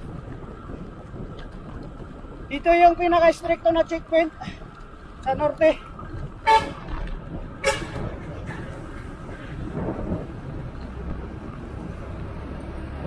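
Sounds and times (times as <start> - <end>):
wind and road traffic rumble: 0.0 - 13.0
vehicle horn toot: 6.4 - 6.9, 7.6 - 8.1.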